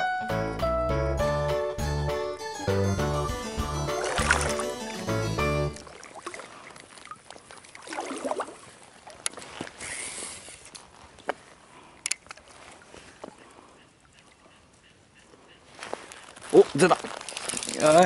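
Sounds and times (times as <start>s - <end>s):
water hiss: 9.8s - 10.7s.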